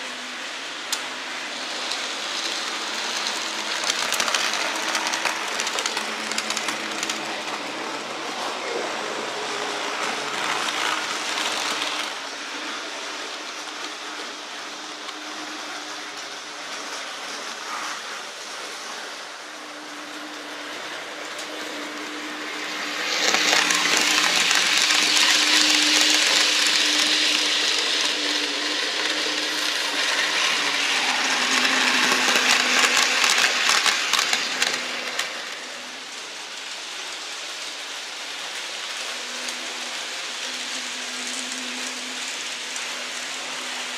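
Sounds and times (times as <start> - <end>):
model train motor hum: 0.0 - 43.9
wheels clicking over rails: 0.8 - 12.2, 21.2 - 36.3.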